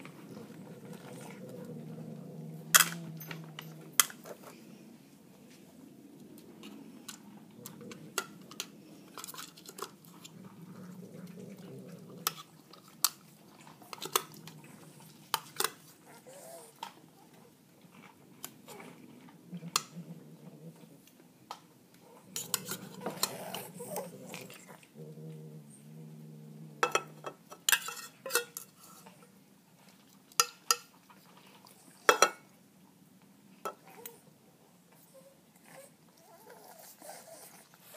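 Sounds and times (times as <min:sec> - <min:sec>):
metal tin clinking and scraping: 0:26.8 - 0:28.8.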